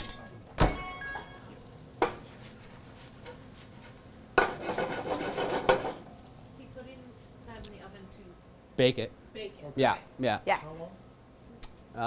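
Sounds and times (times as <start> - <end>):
cookware scraping and clattering: 3.2 - 6.0.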